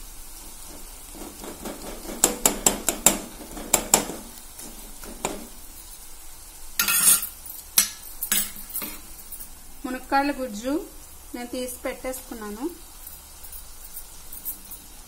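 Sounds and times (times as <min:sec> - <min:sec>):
food sizzling: 0:00.0 - 0:15.0
spoon scraping metal pan: 0:00.6 - 0:05.6, 0:06.8 - 0:09.2.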